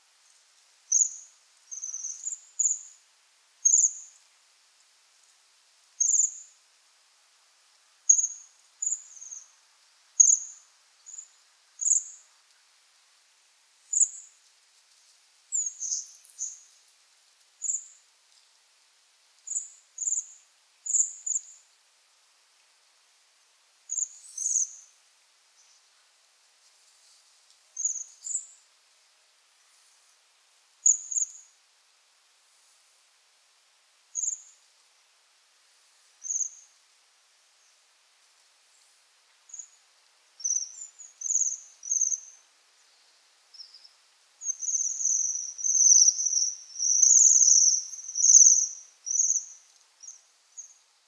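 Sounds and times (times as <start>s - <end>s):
birds giving thin trilling calls: 15.6s - 16.6s, 23.9s - 24.8s, 40.4s - 42.3s, 43.6s - 50.8s.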